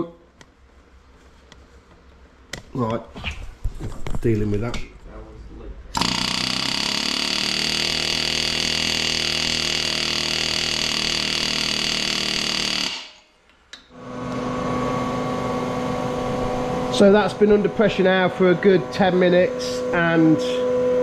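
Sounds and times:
handheld air tool running: 6.0s - 13.2s
steady running machine: 6.0s - 13.2s, 14.0s - 20.7s.

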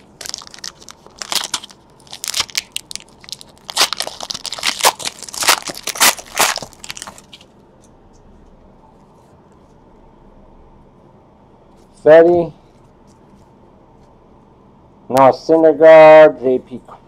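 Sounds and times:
foil wrapper tearing and crinkling: 0.0s - 7.5s.

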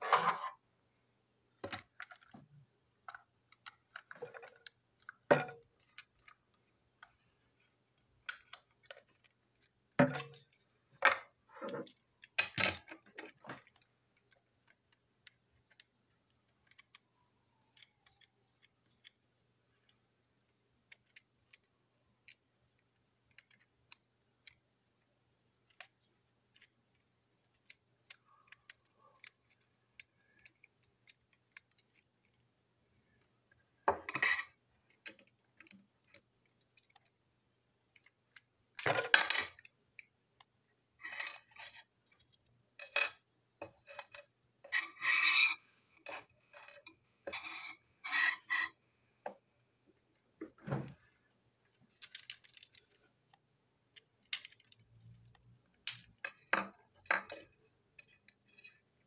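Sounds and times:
toy train parts clicking: 11.9s - 19.2s, 20.8s - 24.6s, 25.6s - 32.4s, 34.2s - 37.2s, 53.9s - 58.8s.

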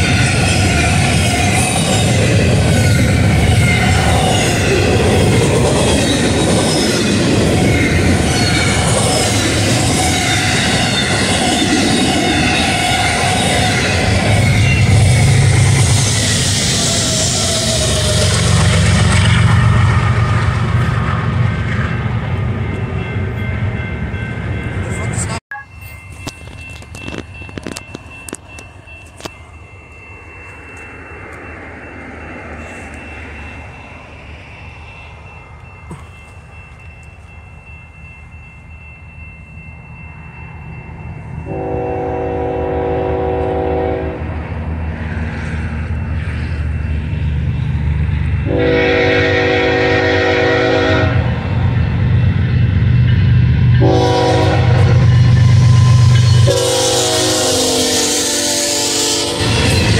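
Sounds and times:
train rumble: 0.0s - 59.9s
locomotive air horn blasts: 41.5s - 44.3s, 48.4s - 51.3s, 53.8s - 55.2s, 56.4s - 59.5s.

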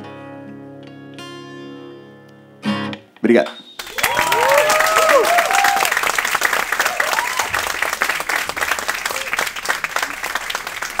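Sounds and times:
audience applauding: 3.8s - 11.0s
audience cheering: 3.8s - 11.0s.

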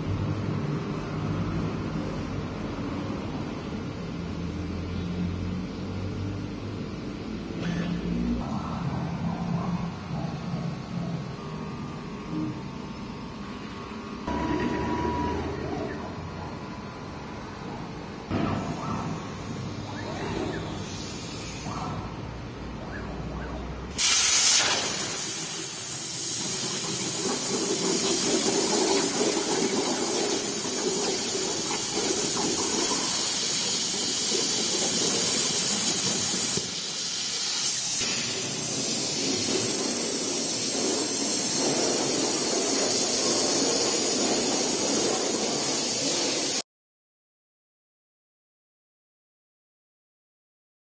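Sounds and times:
plasma torch hissing: 18.3s - 21.8s, 23.9s - 46.6s
plasma arc starting burst: 24.0s - 46.6s.

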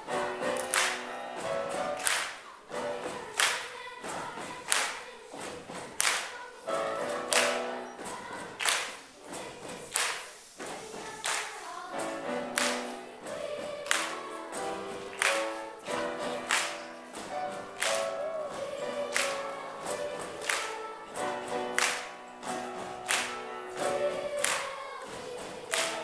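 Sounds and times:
children's choir singing: 0.0s - 26.0s
hand clapping: 0.0s - 26.0s.

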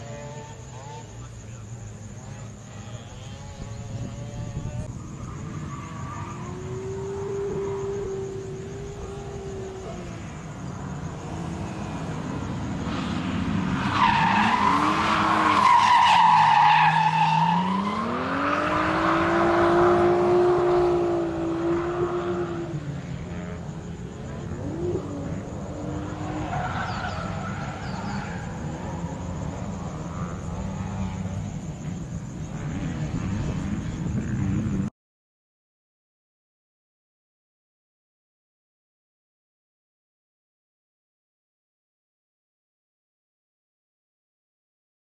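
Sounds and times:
car engine revving: 3.2s - 34.9s.

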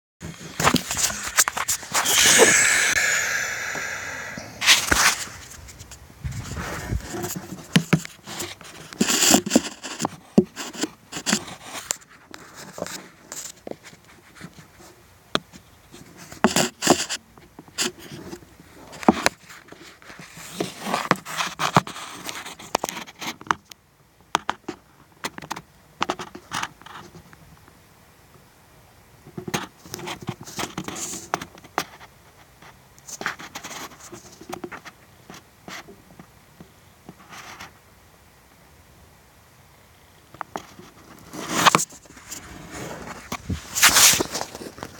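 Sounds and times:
scraping and rustling in insulation: 4.8s - 14.9s, 40.6s - 44.9s.

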